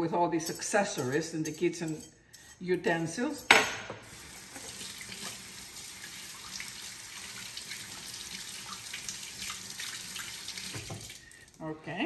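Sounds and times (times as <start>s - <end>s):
faucet running into sink: 4.0s - 11.6s.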